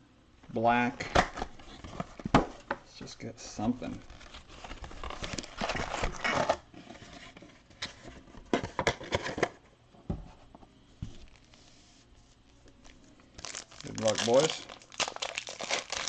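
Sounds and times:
foil packs crinkling: 3.7 - 6.7, 11.2 - 11.6, 12.4 - 16.0.

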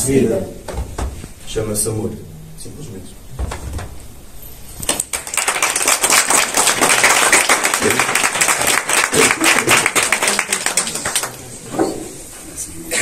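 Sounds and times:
group clapping: 4.8 - 11.7.

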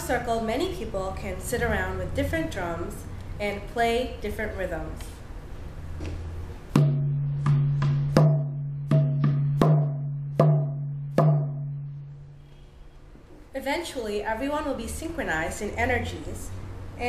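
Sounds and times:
frame drum struck with beater: 6.7 - 12.1.

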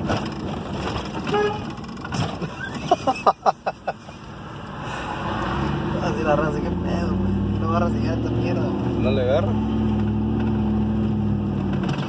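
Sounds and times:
car road noise: 0.0 - 12.0
short car horn beeps: 1.2 - 1.8.

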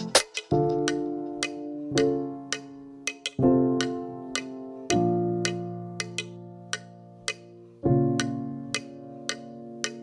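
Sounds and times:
light percussive tick: 0.0 - 7.4
background music chords: 0.0 - 10.0.

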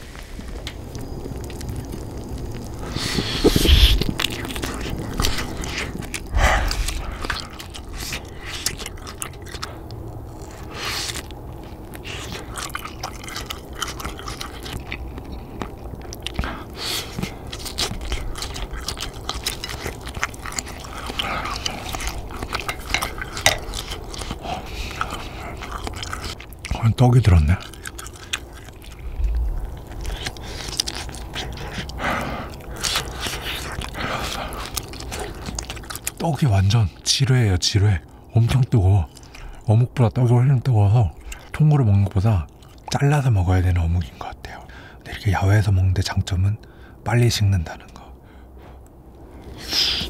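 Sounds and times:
person chewing: 0.0 - 37.1, 39.0 - 39.7, 41.0 - 43.2, 47.8 - 50.0
steady low rumble: 0.0 - 49.9.

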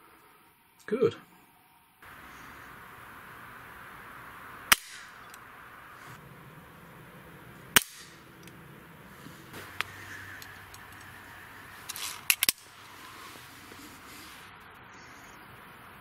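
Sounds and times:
air pistol crack: 4.7 - 5.4, 7.7 - 8.6
faint clicks: 9.6 - 12.6.

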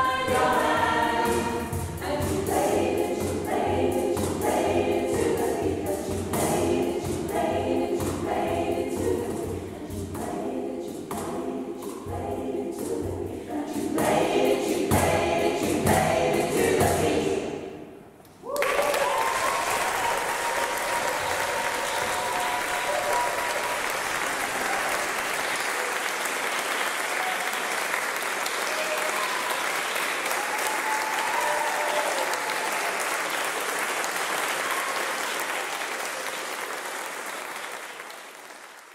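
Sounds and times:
audience applauding: 18.4 - 38.9.

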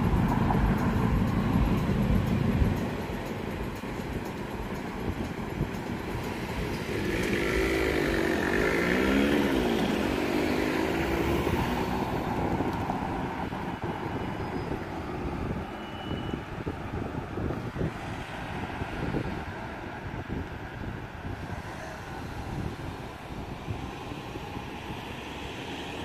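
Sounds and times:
vehicle engine accelerating: 0.0 - 14.0
street traffic noise: 0.0 - 26.0.

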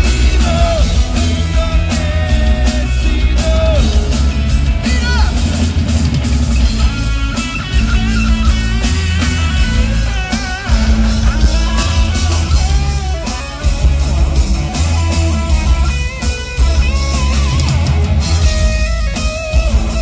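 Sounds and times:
electric guitar lead line: 0.0 - 20.0
live rock band playing: 0.0 - 20.0.

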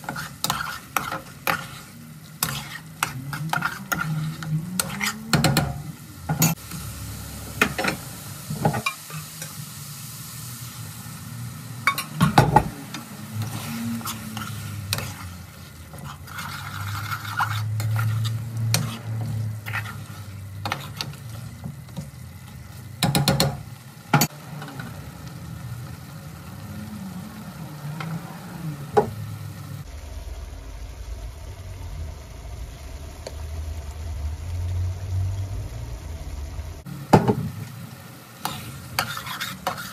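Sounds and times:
utensil scraping and clinking pan: 0.0 - 6.6, 38.4 - 39.9
curry sizzling in a pan: 0.0 - 39.9
steady low hum: 25.2 - 39.1.

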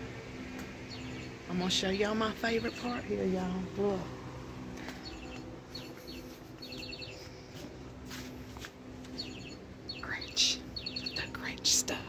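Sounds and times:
low steady hum: 0.0 - 12.0
high bird-like chirps: 5.0 - 7.2, 9.1 - 11.4.

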